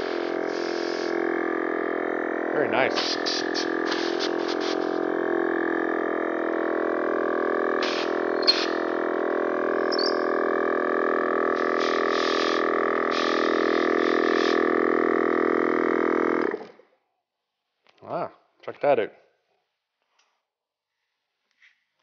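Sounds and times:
short air hisses: 0.0s - 1.2s, 2.9s - 5.0s, 7.8s - 8.8s, 11.6s - 14.7s
air compressor humming: 0.0s - 16.9s.

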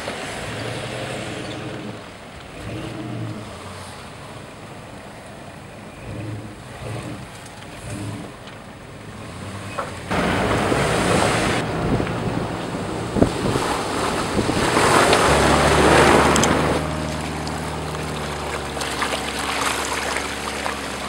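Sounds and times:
engine driving through mud: 0.0s - 21.0s
wind buffeting microphone: 10.1s - 21.0s.

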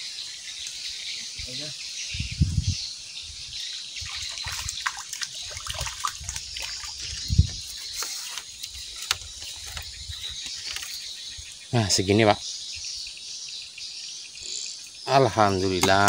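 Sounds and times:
trickling water: 3.7s - 11.6s
water splashing: 4.0s - 7.3s.

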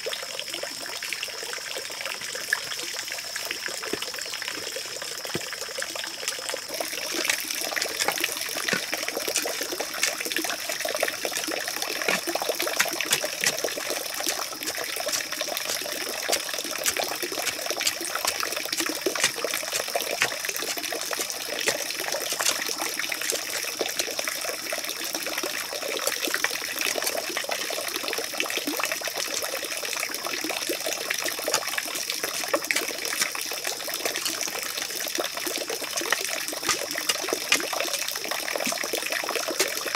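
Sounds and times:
water trickling: 0.0s - 39.9s
bamboo pole digging into soil: 6.7s - 24.5s, 25.4s - 27.4s, 29.3s - 29.6s, 31.1s - 34.6s, 36.0s - 39.9s.

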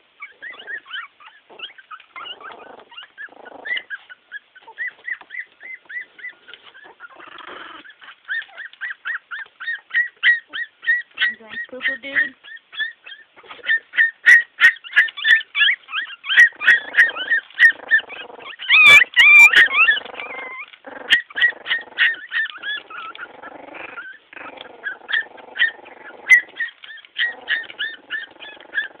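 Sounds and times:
puppies crying: 0.0s - 29.0s.

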